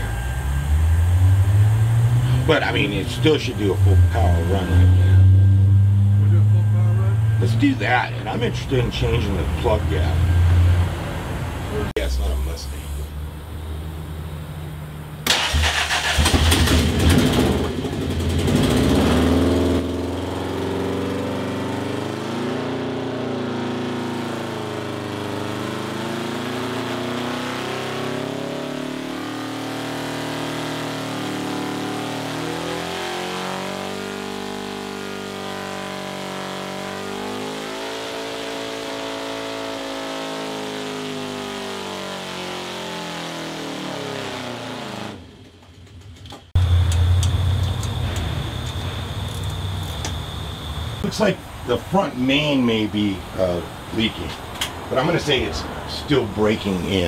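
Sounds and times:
engine running at high revs: 0:00.0 - 0:13.3, 0:15.2 - 0:52.6.

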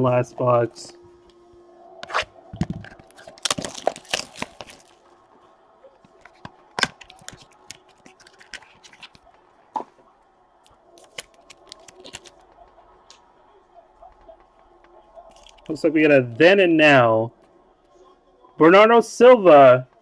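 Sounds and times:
cards clicking and snapping: 0:02.0 - 0:04.9, 0:06.1 - 0:09.3, 0:11.0 - 0:12.5, 0:15.3 - 0:15.8
wrapper tearing and crinkling: 0:02.9 - 0:05.0, 0:06.8 - 0:09.3, 0:11.0 - 0:12.4.

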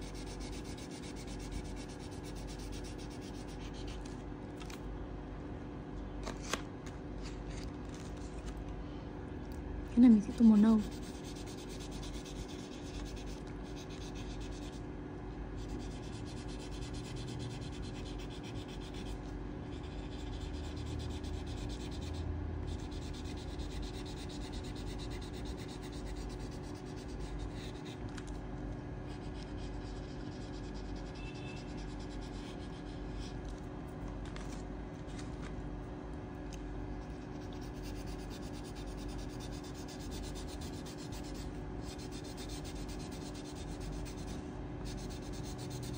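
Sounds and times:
colouring pencil scratching on paper: 0:00.0 - 0:04.1, 0:10.0 - 0:14.8, 0:15.6 - 0:28.0, 0:29.1 - 0:33.4, 0:37.2 - 0:45.9.

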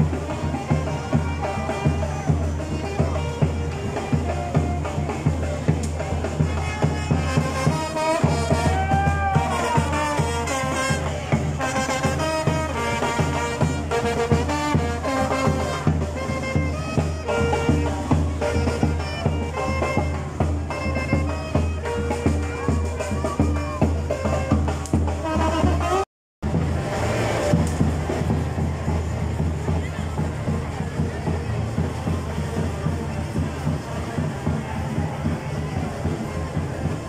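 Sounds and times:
bass drum beat: 0:00.0 - 0:37.0
trombones playing melody: 0:09.4 - 0:19.0, 0:25.2 - 0:26.0.

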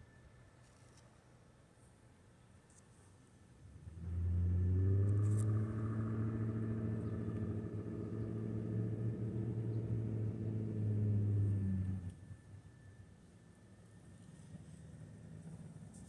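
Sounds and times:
engine running low pitch: 0:03.6 - 0:16.0.

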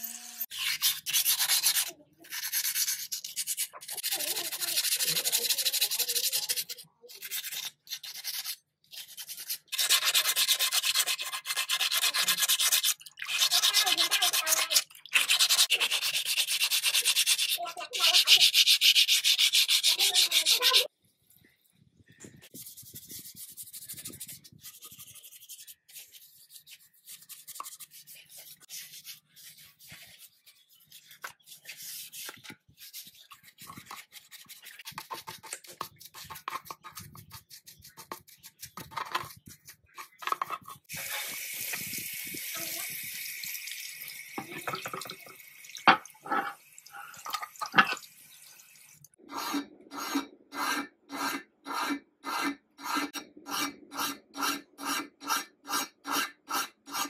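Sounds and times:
stiff brush scrubbing metal: 0:00.5 - 0:20.9
water running: 0:40.9 - 0:49.2
hand file rasping metal: 0:49.3 - 0:57.0.

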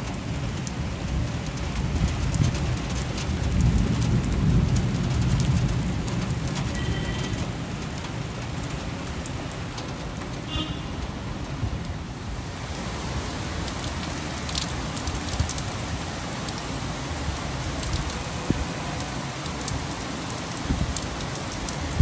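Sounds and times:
heavy rain on trees and rooftops: 0:00.0 - 0:22.0
low rumble of thunder: 0:00.2 - 0:08.8.

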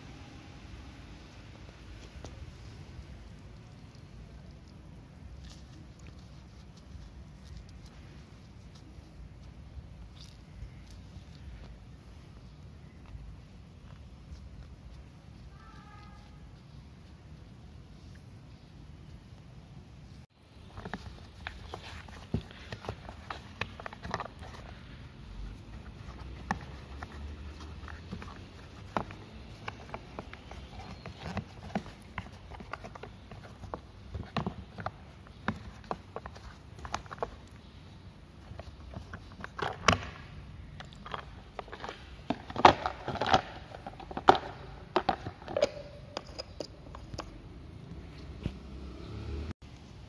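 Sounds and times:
cloth rubbing plastic: 0:20.5 - 0:37.6.

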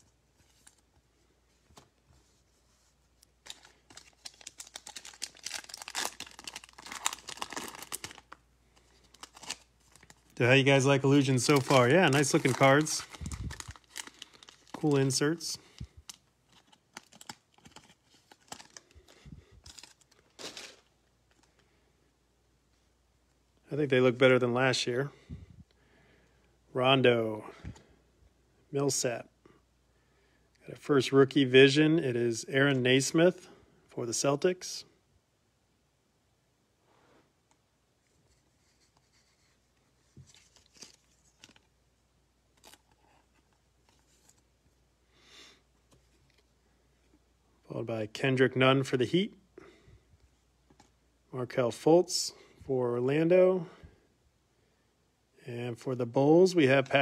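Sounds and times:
cards being handled: 0:00.0 - 0:21.6, 0:38.0 - 0:41.7
foil wrapper crinkling: 0:03.4 - 0:21.6.

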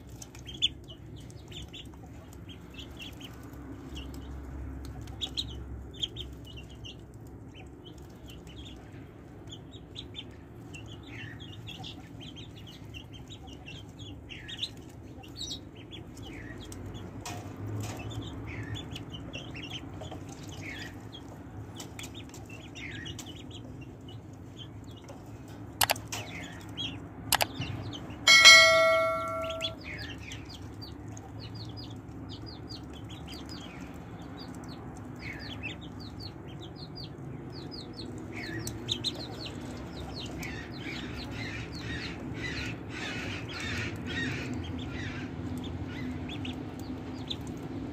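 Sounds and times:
ducklings peeping: 0:00.0 - 0:47.9
sharp clicks: 0:25.8 - 0:26.1, 0:27.3 - 0:27.6
loud bell-like ring: 0:28.3 - 0:29.8.

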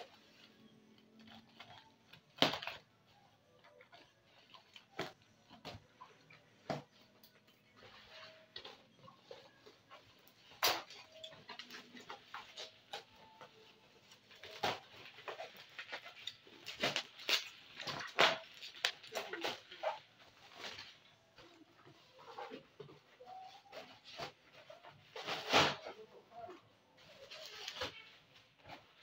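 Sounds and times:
plastic bag and bubble wrap crinkling: 0:00.0 - 0:29.0.

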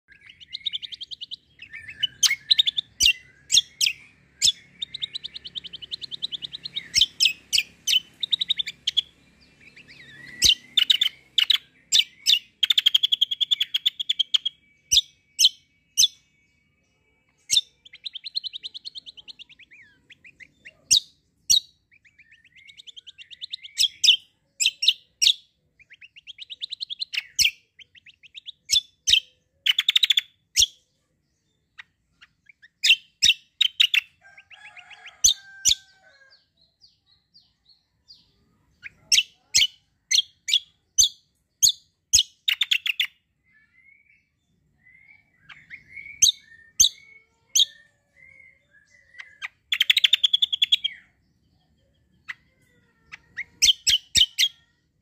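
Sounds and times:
songbird singing trills: 0:00.0 - 0:55.0.

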